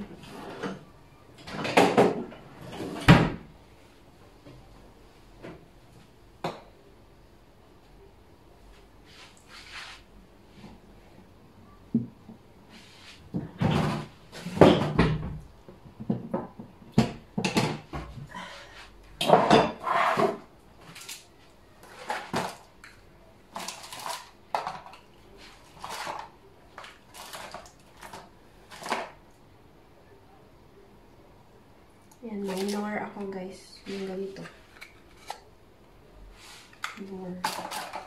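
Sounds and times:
cookware clattering and knocking: 1.5 - 2.4, 13.5 - 15.4, 16.0 - 18.1, 19.2 - 20.5, 24.5 - 25.0.

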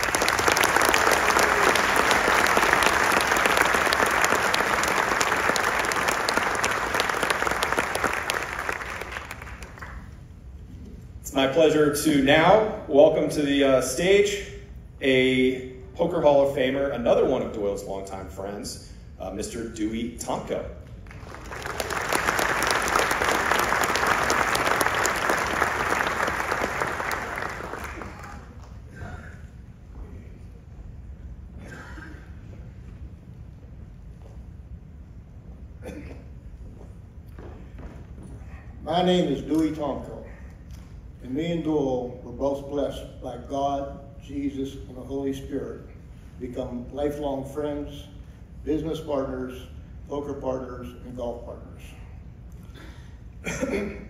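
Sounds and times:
audience applauding: 0.0 - 10.2, 21.0 - 28.8.

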